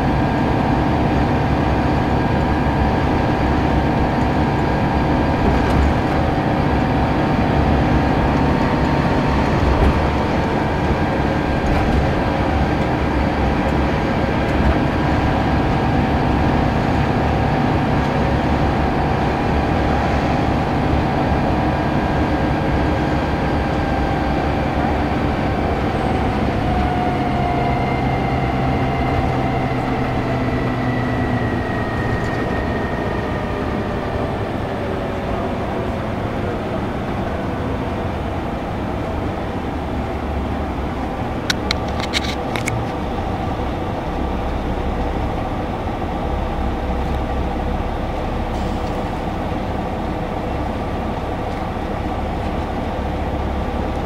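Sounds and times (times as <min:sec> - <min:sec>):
bus engine droning: 0:00.0 - 0:54.0
road and tyre noise: 0:00.0 - 0:54.0
faint whine falling in pitch: 0:42.7 - 0:53.8.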